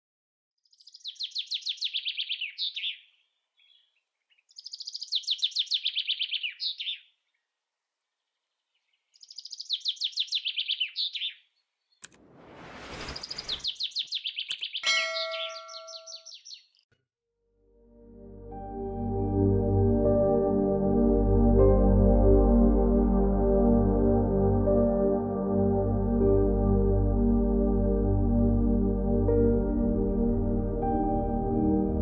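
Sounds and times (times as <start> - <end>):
songbird trilling: 4.5 - 7.1, 9.2 - 11.4, 13.6 - 16.7
whoosh: 12.0 - 13.7
bell-like chime: 14.8 - 16.2.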